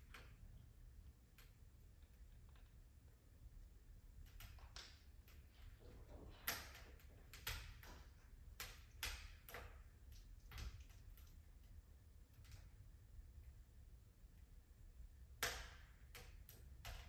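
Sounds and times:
faint low rumble: 0.0s - 7.3s
wood fire crackling and popping: 0.0s - 17.0s.

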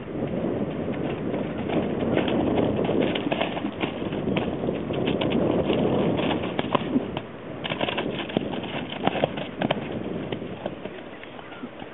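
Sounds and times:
horse hooves thudding on turf: 0.2s - 11.9s.

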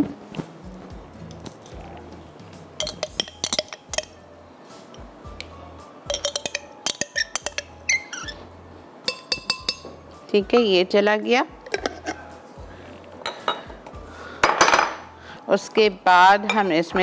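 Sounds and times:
faint background music: 0.0s - 17.0s
glassy clinks and taps: 2.8s - 4.2s, 5.4s - 8.3s, 9.1s - 10.0s, 13.2s - 13.7s.

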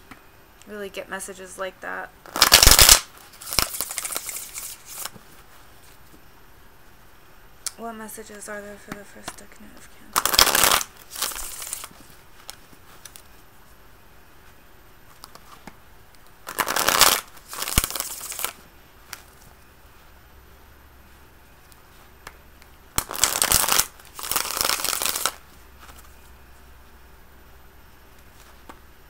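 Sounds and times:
cards being shuffled: 2.3s - 6.2s, 10.1s - 13.3s, 16.5s - 19.5s, 23.0s - 26.2s.

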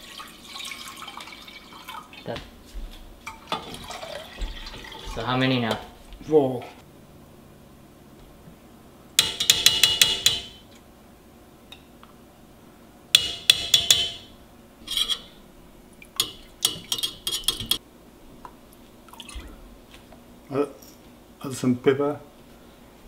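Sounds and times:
spoon scraping a steel pot: 14.8s - 15.4s, 16.2s - 17.8s.

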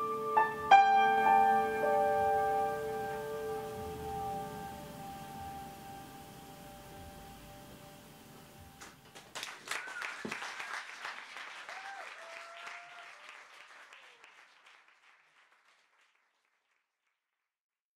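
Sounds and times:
piano and guitar duet: 0.0s - 8.9s
audience applause: 8.8s - 16.9s
audience calls: 8.9s - 14.7s.

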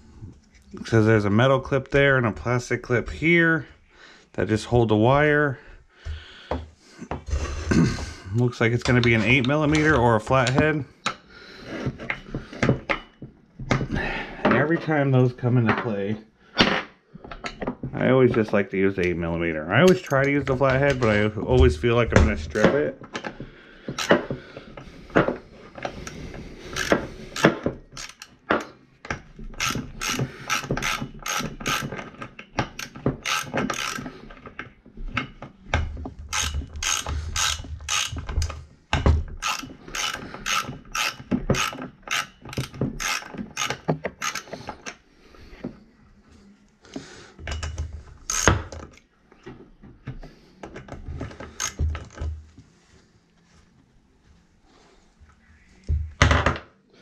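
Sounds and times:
socket ratchet clicking: 26.7s - 28.4s, 29.6s - 34.1s, 36.3s - 38.6s, 39.4s - 45.0s, 51.6s - 51.8s.

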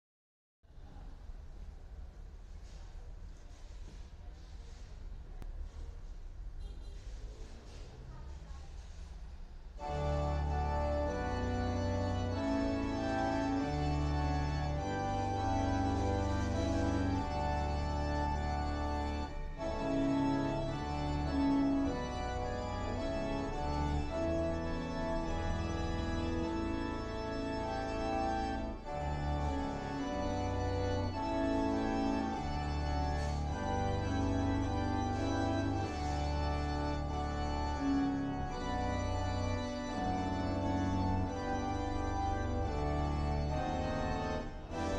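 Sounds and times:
electronic organ chords: 9.8s - 44.9s.

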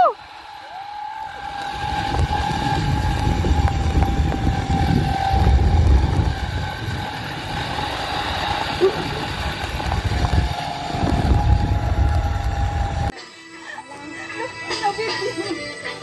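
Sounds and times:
zipline trolley wheels whining: 0.0s - 13.1s
wind rumble on microphone: 1.2s - 13.1s.

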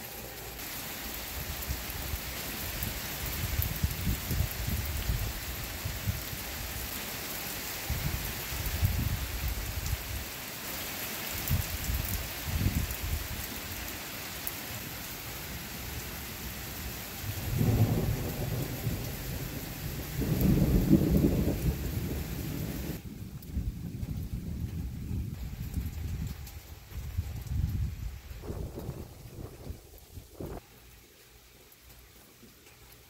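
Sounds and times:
rain hissing: 0.0s - 33.0s
thunder rumbling: 17.3s - 30.6s.

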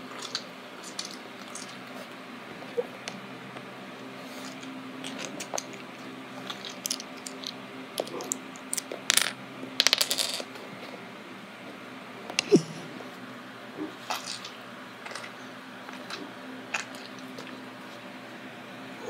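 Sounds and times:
small objects clicking on wooden floor: 6.7s - 10.5s.

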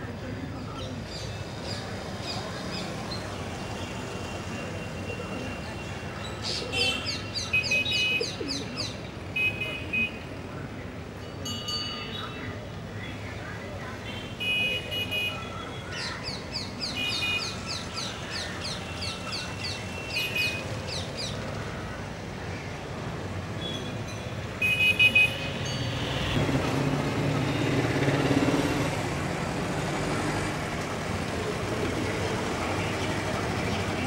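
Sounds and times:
steady traffic hum: 0.0s - 34.0s
passing motor vehicle rumble: 25.5s - 34.0s.

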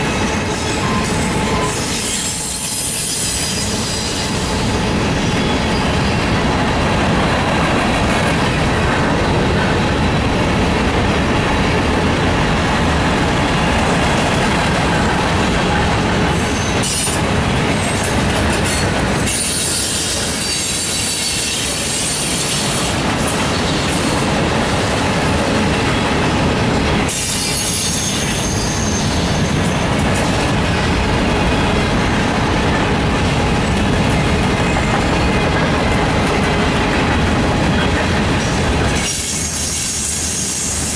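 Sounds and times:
train wheels clacking on rails: 0.0s - 40.9s
wheel squeal: 0.1s - 6.2s, 18.6s - 22.6s, 27.1s - 29.8s.

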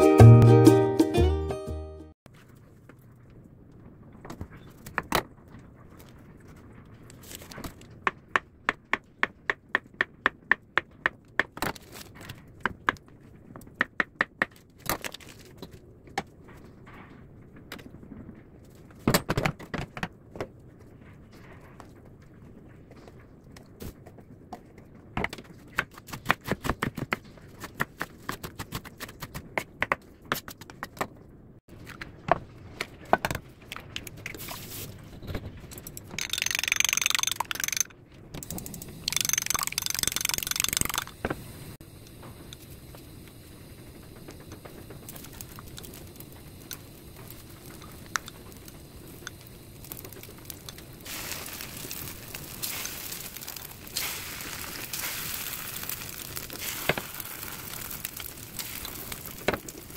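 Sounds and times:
sausage sizzling on griddle: 42.6s - 59.9s
loud hissing: 45.0s - 59.9s.

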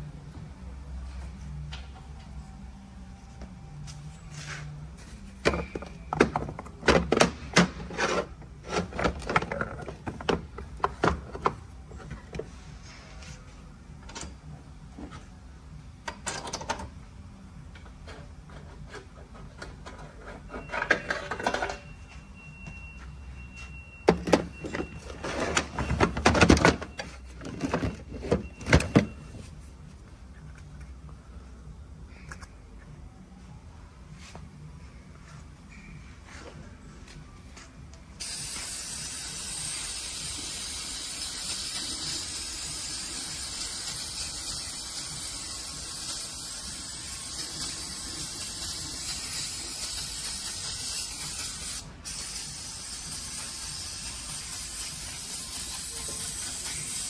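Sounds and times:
metal parts clattering on a workbench: 19.6s - 21.9s.

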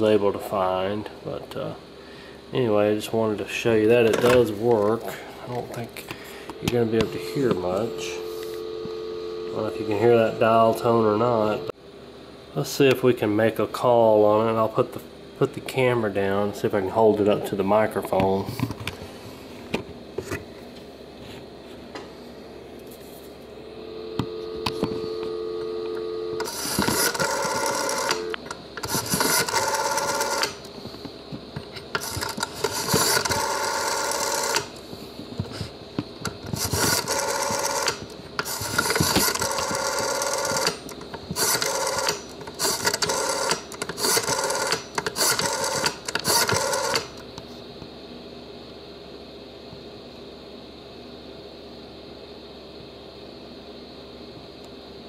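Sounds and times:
telephone dial tone: 6.5s - 11.7s, 23.8s - 30.6s, 32.0s - 34.7s, 36.7s - 40.8s, 41.4s - 47.1s.

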